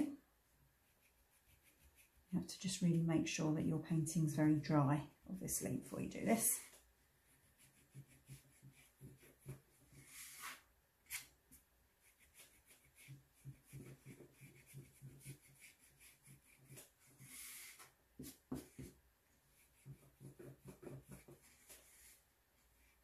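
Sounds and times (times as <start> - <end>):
eraser rubbing on paper: 0.8 - 2.3, 6.7 - 11.3, 12.0 - 18.9, 19.5 - 22.2.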